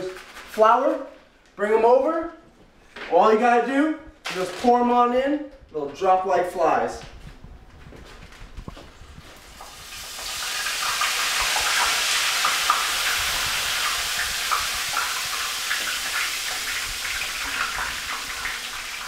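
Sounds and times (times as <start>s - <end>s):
deep-frying sizzle with pops: 9.3s - 19.0s.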